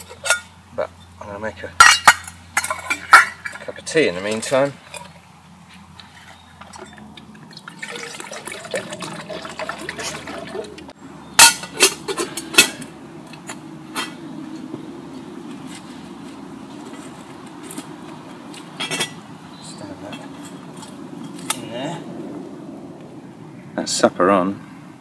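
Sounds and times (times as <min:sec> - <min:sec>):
water poured into metal pot: 0:07.4 - 0:10.9.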